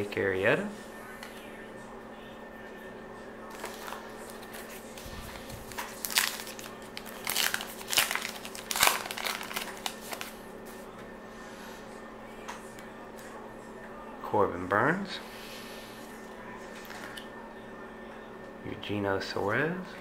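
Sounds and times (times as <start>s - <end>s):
card wrapper tearing and crinkling: 3.5s - 10.4s.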